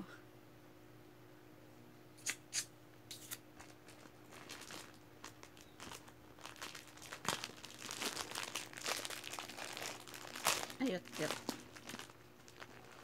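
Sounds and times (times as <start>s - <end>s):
plastic bag crinkling: 3.6s - 13.0s.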